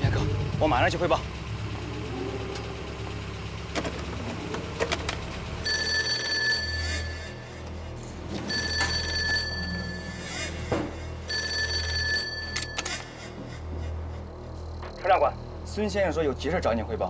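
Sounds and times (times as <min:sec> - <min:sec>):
low background music: 0:00.0 - 0:17.0
desk telephone ringing: 0:05.6 - 0:07.4, 0:08.5 - 0:10.1, 0:11.3 - 0:13.0.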